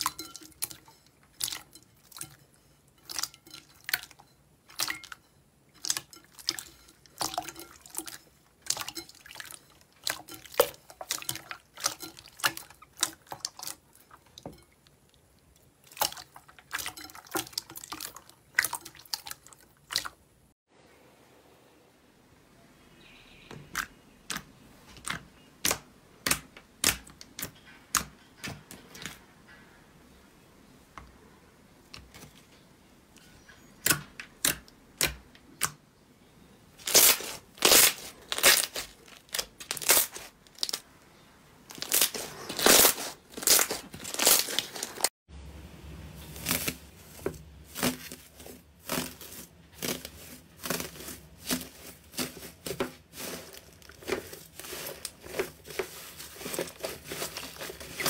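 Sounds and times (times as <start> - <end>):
foil crinkling: 36.8 - 40.8, 41.7 - 45.1, 46.3 - 58.0.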